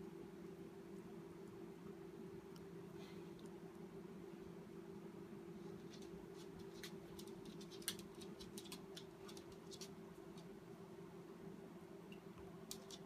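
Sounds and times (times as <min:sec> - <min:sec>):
puppy claws clicking on floor: 0:05.8 - 0:10.5, 0:12.6 - 0:13.0.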